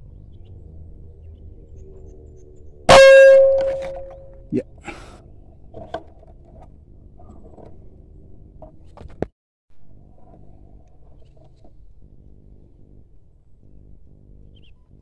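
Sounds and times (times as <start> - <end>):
sharp knock: 2.9 - 4.3
camera handling and rubbing noise: 10.1 - 12.0.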